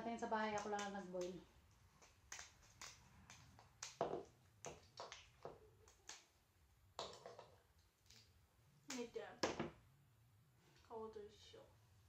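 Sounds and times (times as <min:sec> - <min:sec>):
crab shells cracking: 0:00.6 - 0:06.3.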